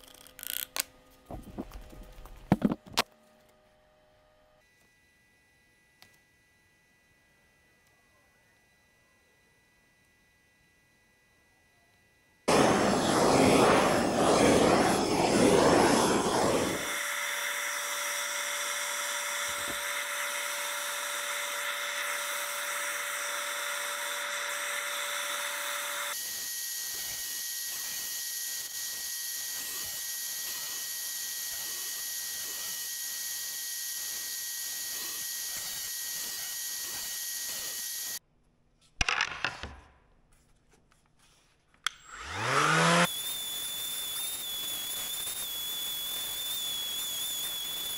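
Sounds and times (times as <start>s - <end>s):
loud rushing noise: 12.5s - 17.0s
drum sander running: 12.5s - 26.2s.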